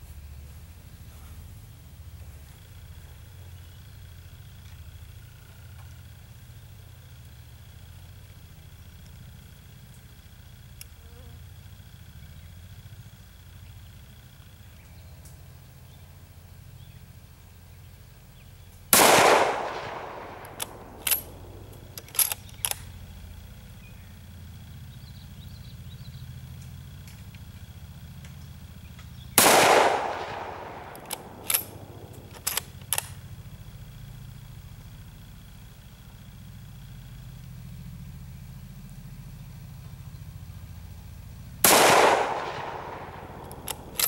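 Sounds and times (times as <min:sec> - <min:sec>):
rifle shots with echo: 0:18.9 - 0:22.9, 0:29.3 - 0:33.1, 0:41.6 - 0:44.0
rifle bolt metallic clicks: 0:19.0 - 0:23.0, 0:29.4 - 0:33.2, 0:41.7 - 0:44.0.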